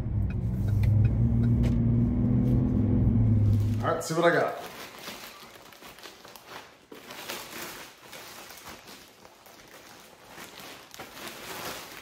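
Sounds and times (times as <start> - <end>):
rustling of unpacking: 3.4 - 12.0.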